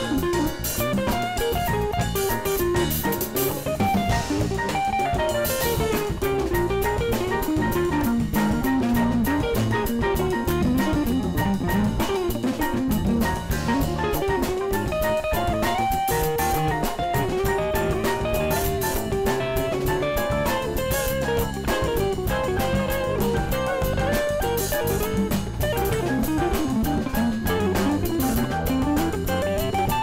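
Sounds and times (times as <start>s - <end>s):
congas: 0.0s - 30.0s
drum kit: 0.0s - 30.0s
electric bass: 0.0s - 30.0s
piano: 0.0s - 30.0s.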